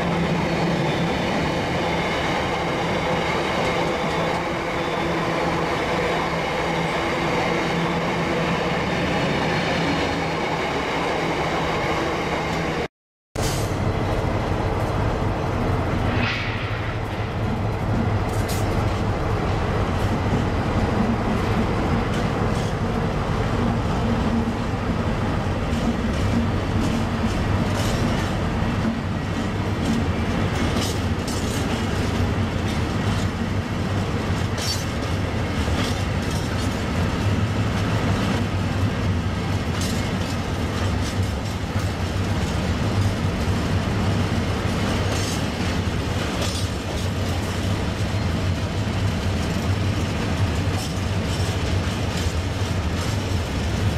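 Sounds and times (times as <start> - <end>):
diesel locomotive passing: 0.0 - 53.9
train wheels rumbling on rail: 0.0 - 53.9
wheels clattering over rail joints: 25.4 - 53.9.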